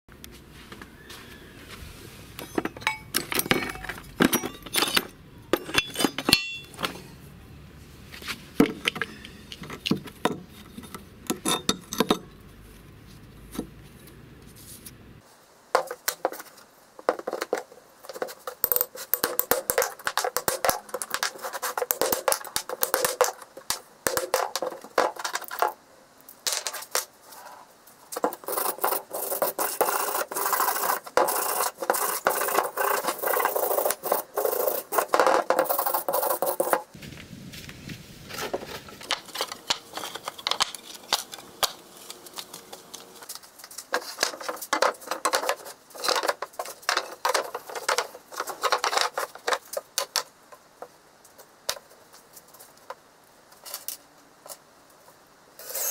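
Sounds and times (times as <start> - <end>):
metal parts clinking in plastic tub: 2.4 - 7.0
wire brush scrubbing metal: 28.2 - 36.8.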